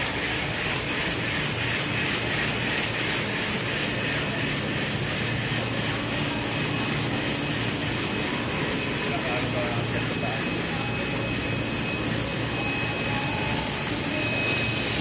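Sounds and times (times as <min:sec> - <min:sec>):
ventilation fans rushing air: 0:00.0 - 0:15.0.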